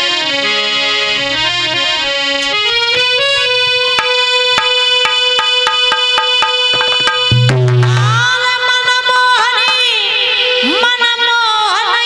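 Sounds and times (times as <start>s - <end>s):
reedy keyboard melody: 0.0s - 11.4s
sharp percussion taps: 2.8s - 10.2s.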